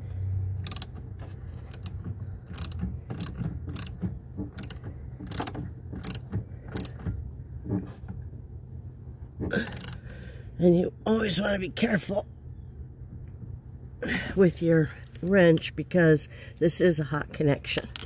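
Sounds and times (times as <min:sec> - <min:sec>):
ratchet wrench clicking: 0:00.6 - 0:01.0, 0:01.6 - 0:04.0, 0:04.6 - 0:07.0, 0:09.6 - 0:10.0.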